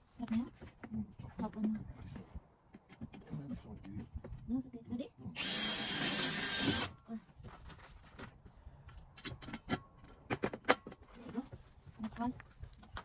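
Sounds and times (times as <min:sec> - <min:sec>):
cordless drill running: 0:05.4 - 0:06.9.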